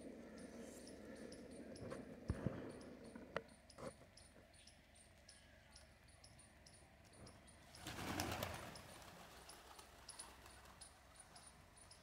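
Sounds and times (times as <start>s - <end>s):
pigeon wings flapping: 7.8s - 10.8s.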